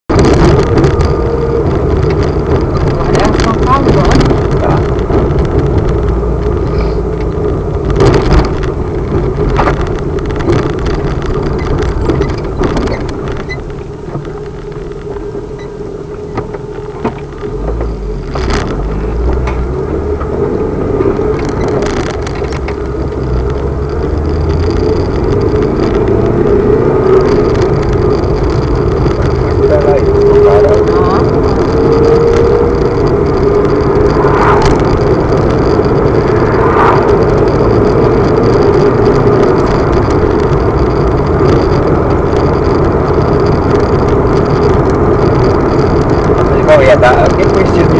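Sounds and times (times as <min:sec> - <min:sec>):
vehicle engine and road noise: 0:00.0 - 0:47.9
knocks and bumps: 0:00.1 - 0:15.3, 0:16.2 - 0:20.3.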